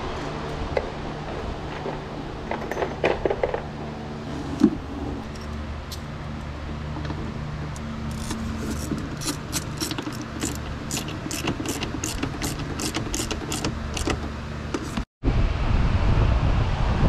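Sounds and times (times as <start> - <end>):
steady low hum: 0.0 - 17.0
wind rumbling on microphone: 15.2 - 17.0.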